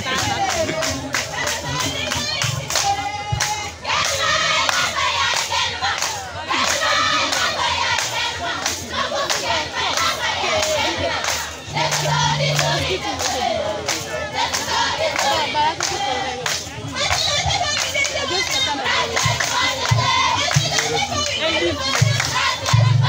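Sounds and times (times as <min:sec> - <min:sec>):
group singing and chanting: 0:00.0 - 0:23.0
sharp percussive beats: 0:11.3 - 0:13.3, 0:22.0 - 0:23.0.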